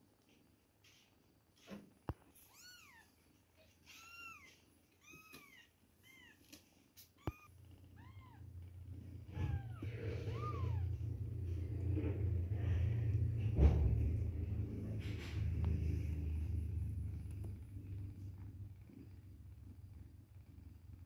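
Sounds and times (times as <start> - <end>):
kittens mewing: 7.2 - 12.6
low steady rumble: 7.2 - 21.0.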